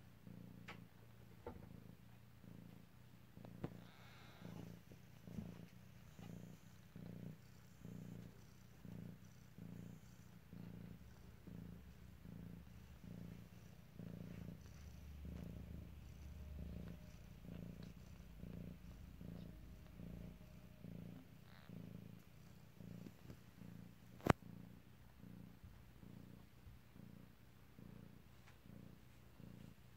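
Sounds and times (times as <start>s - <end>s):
cat purring: 0.0s - 29.9s.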